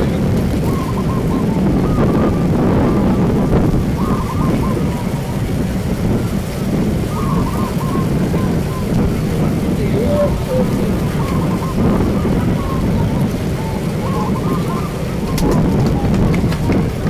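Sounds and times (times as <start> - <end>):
crowd murmur: 0.0 - 17.0
doves cooing: 0.0 - 17.0
wind on microphone: 0.0 - 17.0.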